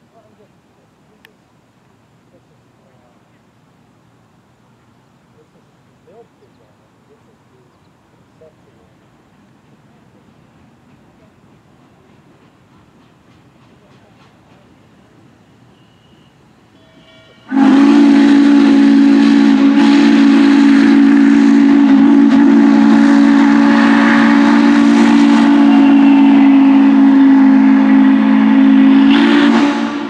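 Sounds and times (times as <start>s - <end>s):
steam hissing: 8.3s - 30.0s
train steam whistle blast: 15.5s - 30.0s.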